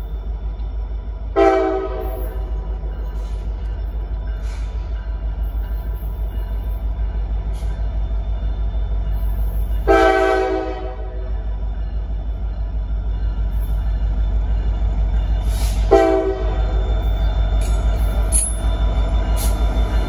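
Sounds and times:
diesel locomotive engine rumbling: 0.0 - 20.0
train horn blast: 1.4 - 2.4, 9.9 - 11.3, 15.6 - 16.6.

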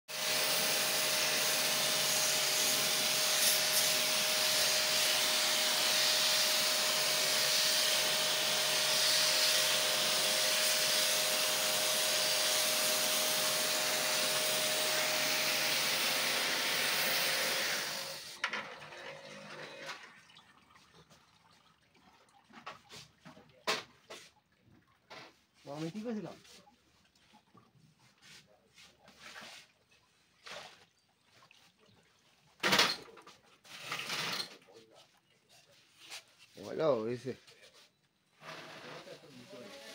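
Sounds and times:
water spray on metal coil: 0.4 - 18.4.

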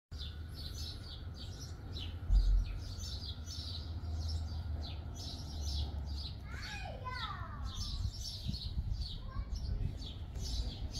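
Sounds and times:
small birds chirping: 0.1 - 10.9
steady low rumble: 0.1 - 10.9.

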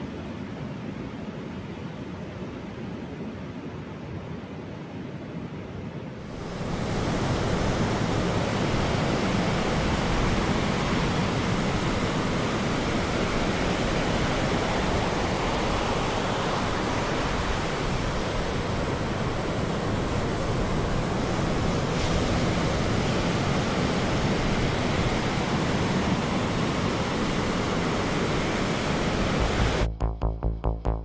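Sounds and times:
ocean surf breaking: 6.3 - 29.9.

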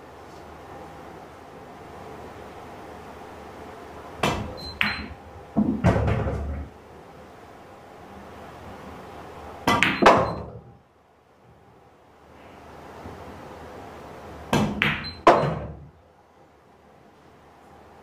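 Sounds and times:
pool balls clicking: 4.2 - 6.8, 9.6 - 10.8, 14.5 - 16.0
cue striking ball: 9.7 - 10.6, 14.5 - 15.8.

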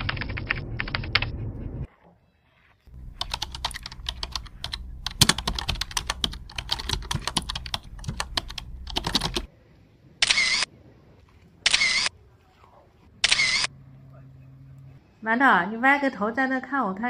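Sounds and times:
keyboard typing: 0.0 - 1.3, 2.9 - 9.5.

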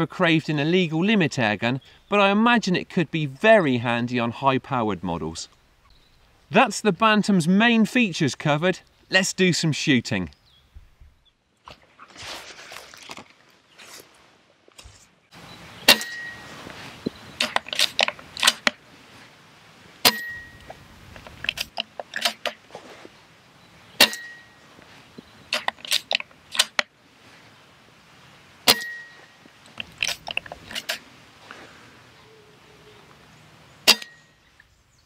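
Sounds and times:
silenced air rifle shots: 15.8 - 16.4, 17.4 - 18.8, 24.0 - 24.5, 28.6 - 29.1, 33.8 - 34.2
metallic clicks of rifle bolt: 17.4 - 18.8, 21.2 - 22.6, 25.5 - 26.9.

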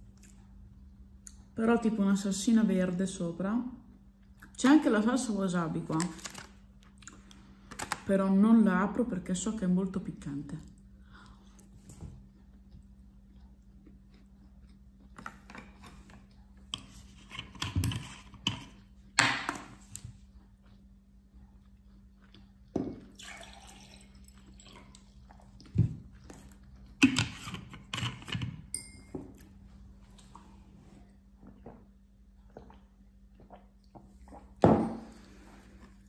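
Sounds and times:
faint low hum: 0.0 - 36.0
wet chewing and mouth noises: 10.6 - 17.6, 19.8 - 23.2, 24.3 - 28.3, 29.4 - 34.6.

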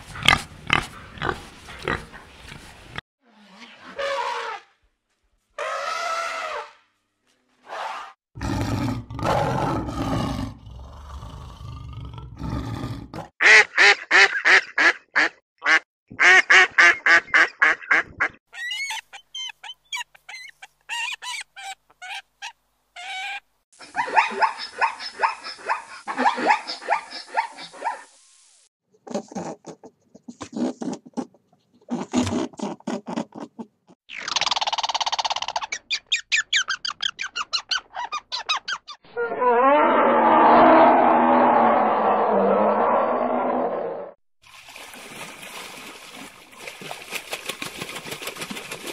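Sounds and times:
duck quacking: 13.4 - 18.4
loud low roar: 39.8 - 44.2.

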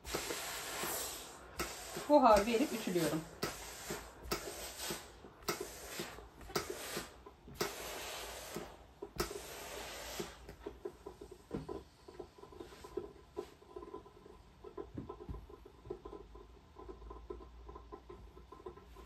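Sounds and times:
steam iron hissing: 0.0 - 11.2
iron and cloth rustling: 0.0 - 13.6.

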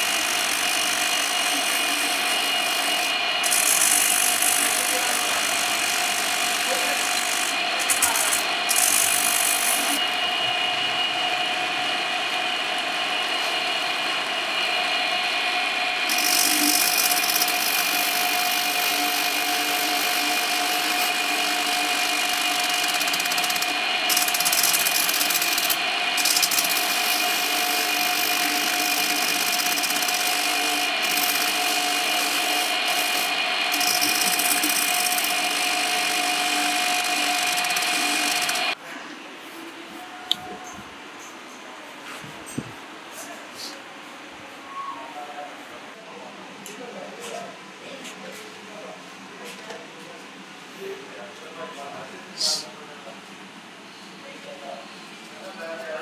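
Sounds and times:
power buffer whining: 0.0 - 38.8.

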